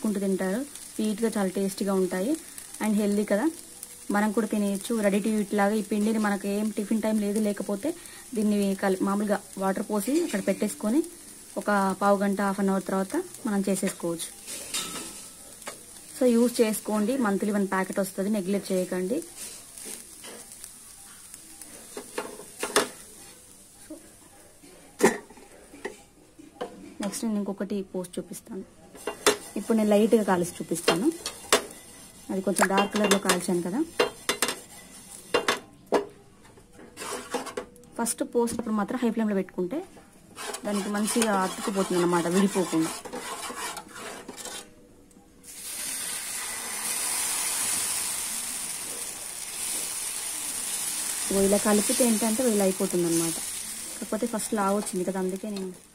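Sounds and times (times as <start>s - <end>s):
light sizzle: 0.0s - 26.3s, 27.0s - 55.9s
spatula scraping on pan: 36.9s - 37.6s, 40.3s - 44.8s.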